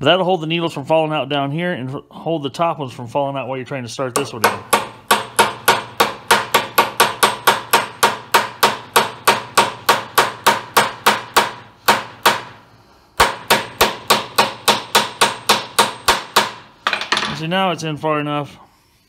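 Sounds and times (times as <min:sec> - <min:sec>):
small hammer tapping metal: 0:04.2 - 0:12.4, 0:13.2 - 0:17.4.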